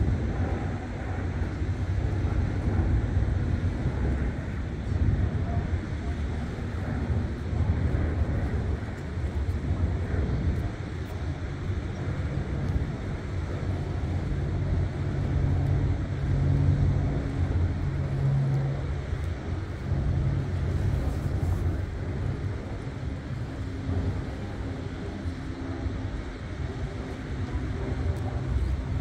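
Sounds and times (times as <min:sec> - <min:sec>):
engine rumble with droning hum: 0:00.0 - 0:29.0.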